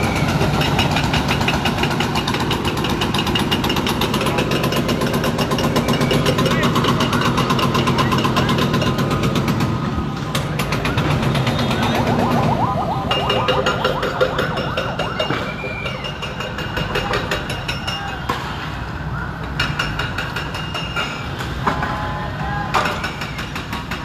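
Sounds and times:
diesel engine rumbling: 0.0s - 17.8s
rising and falling tones: 11.7s - 17.3s.

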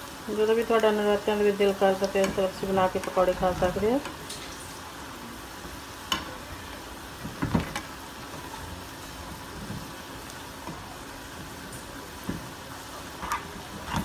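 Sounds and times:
food deep-frying in oil: 0.0s - 14.0s.

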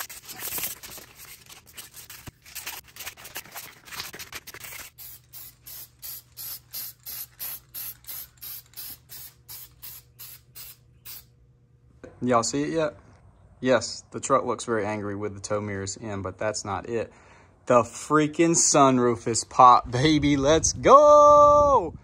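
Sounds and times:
spray paint can hissing: 4.6s - 11.3s.

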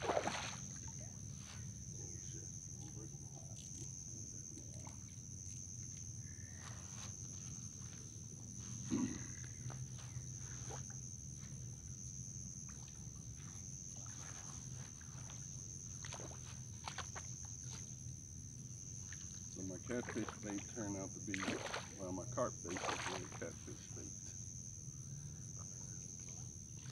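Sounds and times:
fish splashing at surface: 0.0s - 0.8s, 21.3s - 22.0s, 22.7s - 23.4s
insects droning: 0.0s - 26.9s.

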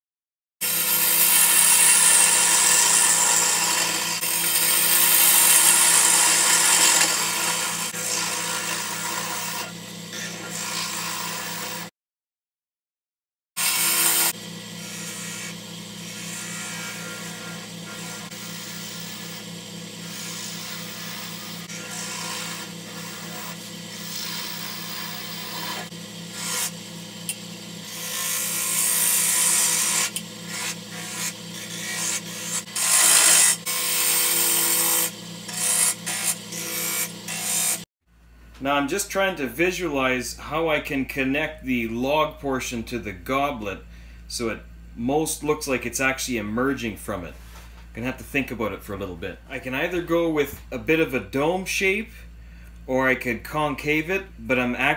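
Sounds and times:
wood lathe humming: 0.6s - 11.9s, 13.6s - 37.9s
gouge shaving wood: 0.8s - 11.9s, 13.6s - 37.8s.

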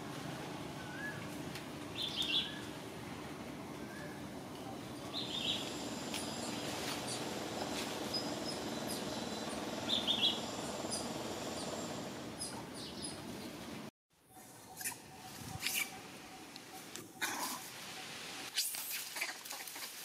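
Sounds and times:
low background hum: 0.1s - 13.9s
high chirps and squeaks: 14.7s - 16.0s.

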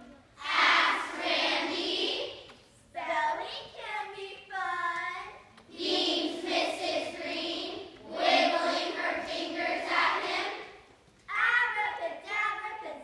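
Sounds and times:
children chanting: 0.4s - 2.4s.

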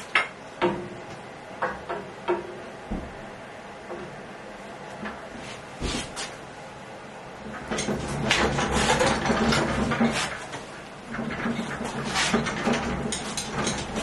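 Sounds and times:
frame and handle knocks: 1.6s - 3.2s
castor wheels rolling across floor: 7.5s - 14.0s.

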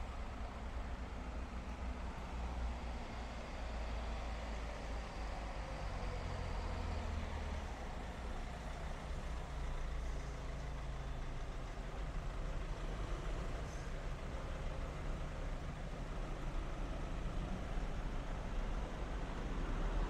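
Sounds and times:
vehicle engine low rumble: 0.0s - 20.0s.

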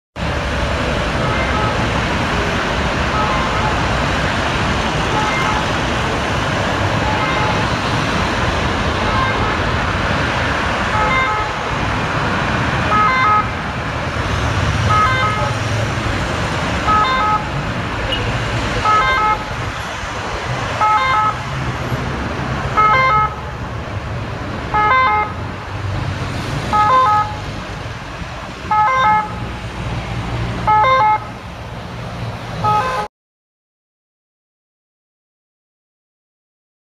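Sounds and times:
dense motorway traffic: 0.2s - 33.1s
ambulance siren: 0.6s - 14.2s, 14.8s - 16.0s, 16.7s - 21.6s, 22.7s - 23.6s, 24.7s - 25.4s, 26.7s - 27.5s, 28.6s - 29.4s, 30.6s - 31.4s, 32.6s - 33.1s.

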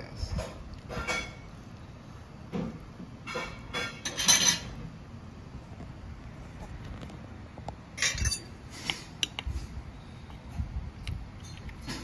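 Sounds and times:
cutlery scraping in a tin can: 3.3s - 4.7s, 8.0s - 8.5s.

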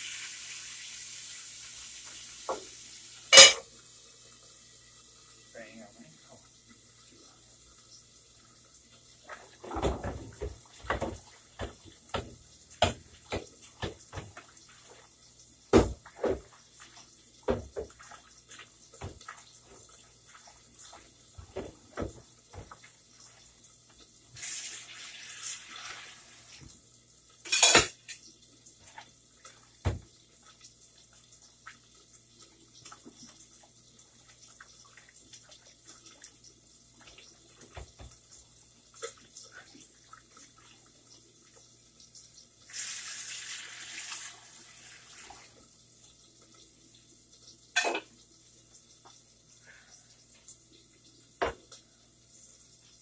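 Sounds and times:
dishes and utensils clinking: 3.3s - 3.6s, 27.5s - 28.2s, 47.8s - 48.1s.

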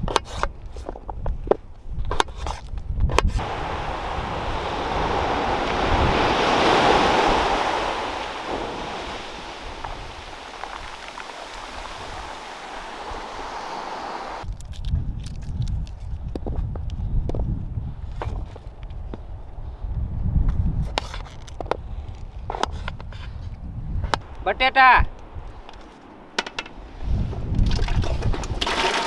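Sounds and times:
wave washing in and draining: 3.4s - 14.4s, 27.0s - 29.0s.

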